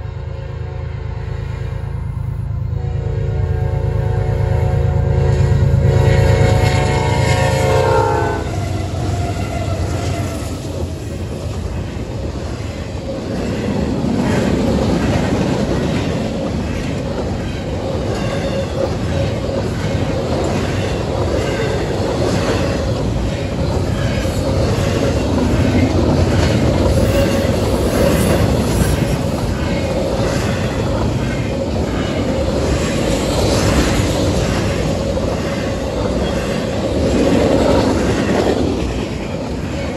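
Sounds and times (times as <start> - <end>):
train rumbling past: 0.0 - 39.9
locomotive horn blowing: 2.6 - 8.8.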